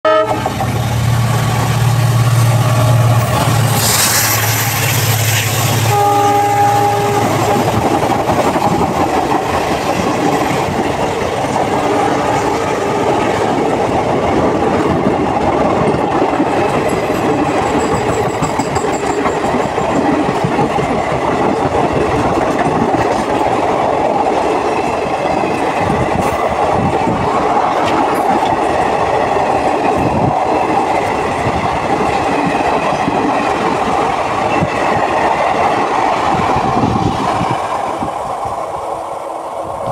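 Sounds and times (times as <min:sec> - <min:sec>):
train horn blast: 0:00.0 - 0:00.6, 0:05.8 - 0:07.8, 0:11.8 - 0:13.3
train wheels clattering over rails: 0:00.4 - 0:38.8.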